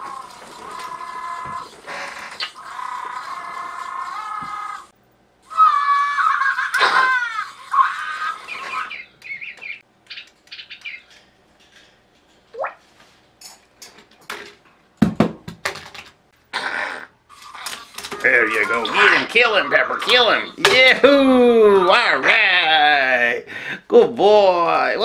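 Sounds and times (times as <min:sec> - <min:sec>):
parrot calls: 0:00.0 - 0:11.1.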